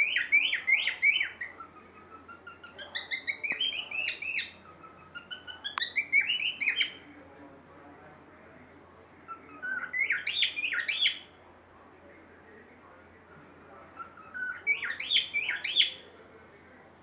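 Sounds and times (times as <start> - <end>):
cockatiel whistling: 2.4 - 6.9, 9.4 - 11.2, 14.0 - 16.0.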